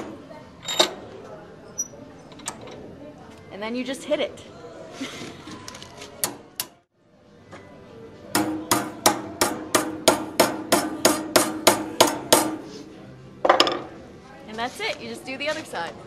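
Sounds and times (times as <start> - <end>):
hammer striking metal strap: 8.4 - 12.6.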